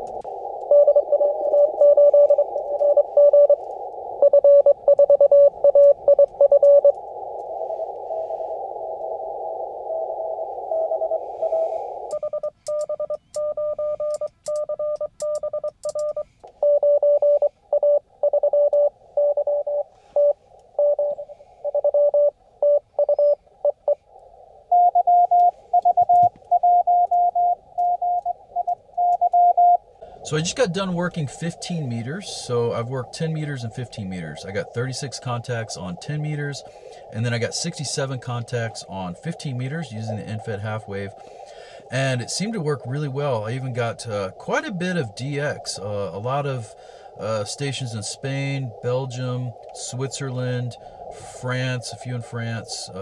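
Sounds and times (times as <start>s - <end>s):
radio receiver hiss: 0.0s - 14.5s, 29.8s - 53.0s
keyed sidetone with clicks: 0.1s - 3.6s, 4.2s - 7.0s, 12.1s - 24.0s, 24.7s - 29.8s
morse code beeping tones: 0.7s - 3.6s, 4.2s - 7.0s, 10.8s - 24.0s, 24.7s - 29.8s.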